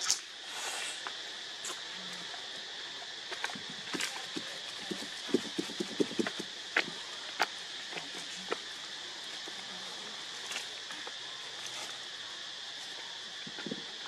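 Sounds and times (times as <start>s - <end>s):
steady high hiss: 0.0s - 14.0s.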